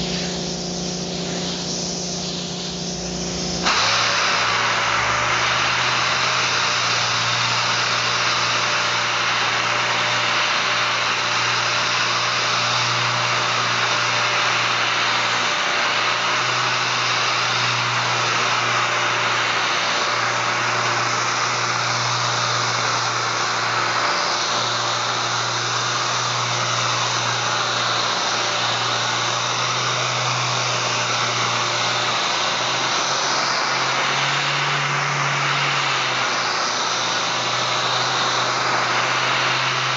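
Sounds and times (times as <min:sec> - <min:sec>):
orbital air sander whirring: 0:00.0 - 0:39.9.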